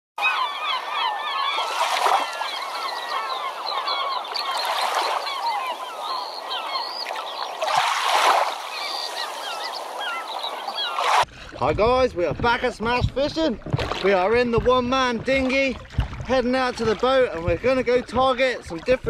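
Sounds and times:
flock of birds calling: 0:00.2 - 0:11.2
oar strokes splashing: 0:00.8 - 0:19.0.

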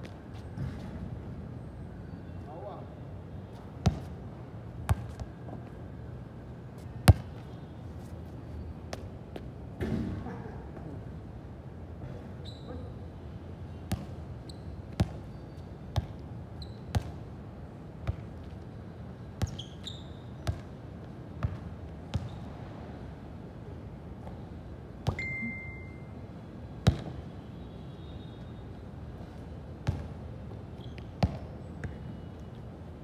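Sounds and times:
steady background noise: 0:00.0 - 0:33.0
short high squeaks: 0:12.4 - 0:13.0, 0:19.5 - 0:20.3
brief high tone: 0:25.2 - 0:26.2.

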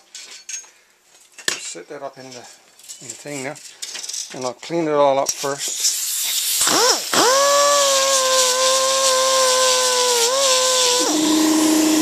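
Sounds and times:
rotary grinder whining: 0:06.7 - 0:12.0.

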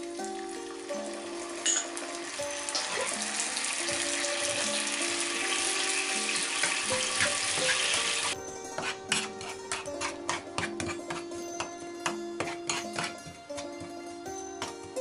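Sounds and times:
sauce sizzling in hot oil: 0:00.0 - 0:08.4
background music: 0:00.0 - 0:15.0.

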